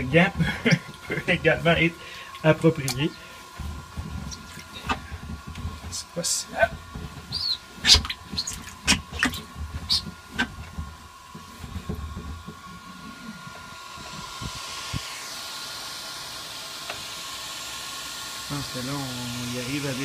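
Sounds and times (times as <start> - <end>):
water splashing in a hull: 6.6 - 12.5.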